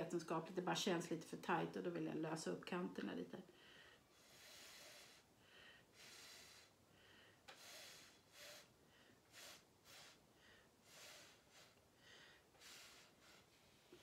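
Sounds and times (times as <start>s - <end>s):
breath blown through a straw: 4.0s - 14.0s.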